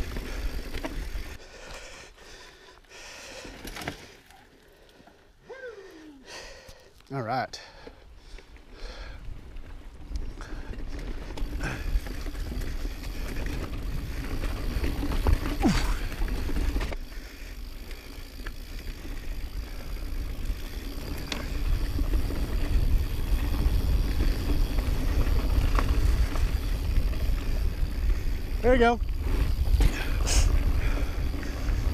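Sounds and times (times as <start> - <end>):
tyres rolling on dirt: 9.4 - 31.9
bike knocking and rattling: 10.4 - 31.9
wind rumbling on microphone: 19.0 - 31.9.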